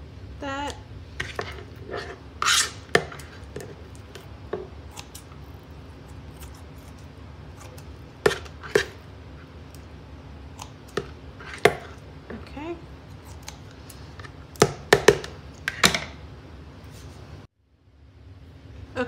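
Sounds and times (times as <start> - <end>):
kitchen shears snipping: 0.7 - 9.0, 10.5 - 12.0, 13.1 - 16.0.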